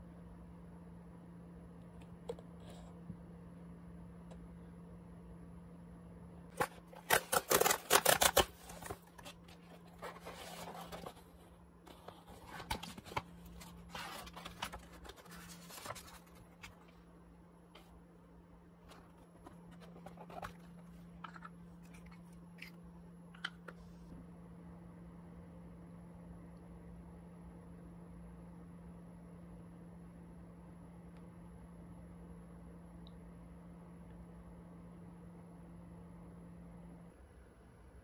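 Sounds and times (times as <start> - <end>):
steady low hum: 0.0 - 38.0
crinkles and clicks: 6.5 - 17.0
paper rustling: 6.6 - 17.0, 18.8 - 22.2.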